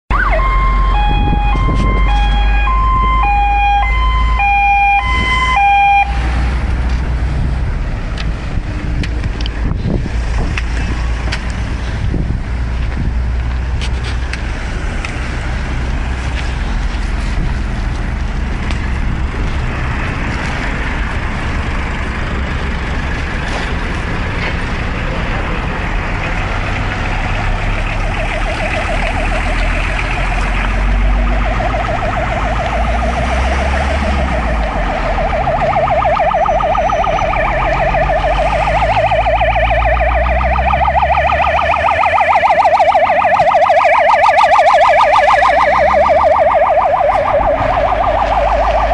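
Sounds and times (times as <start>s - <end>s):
fire engine siren warbling: 0.1s - 7.5s, 26.3s - 48.9s
road traffic: 0.1s - 48.9s
wind rumble: 0.1s - 48.9s.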